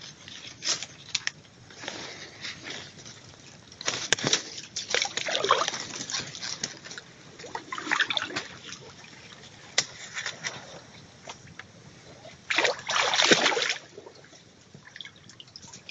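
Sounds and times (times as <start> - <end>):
footsteps splashing in swamp water: 3.9 - 6.6, 12.5 - 14.0.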